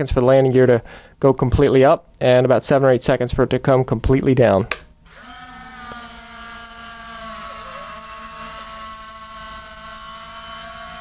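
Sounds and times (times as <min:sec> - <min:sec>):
landing gear motors whining: 0:05.1 - 0:11.0.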